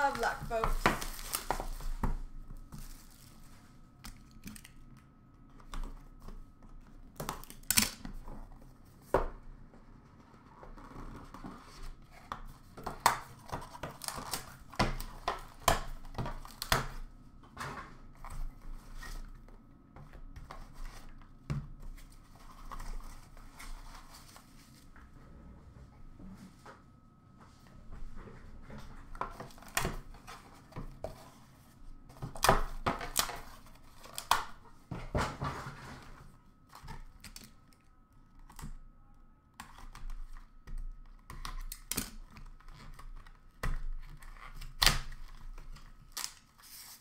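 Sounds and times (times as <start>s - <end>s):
plastic wrap tearing and crinkling: 0.0s - 2.0s, 2.7s - 3.6s, 44.0s - 47.0s.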